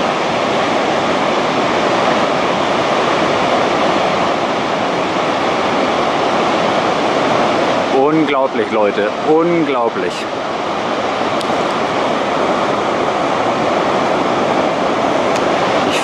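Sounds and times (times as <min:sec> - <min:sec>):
waterfall rushing: 0:00.0 - 0:16.0.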